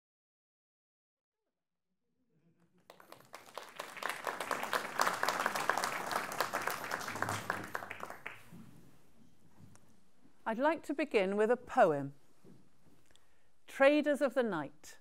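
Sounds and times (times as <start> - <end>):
audience applauding: 2.8 - 8.6.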